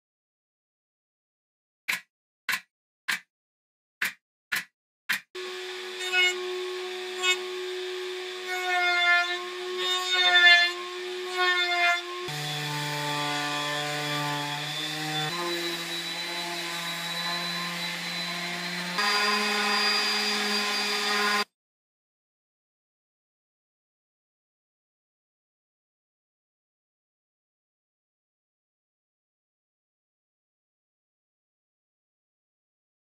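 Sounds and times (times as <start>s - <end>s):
router cutting wood: 5.2s - 21.5s.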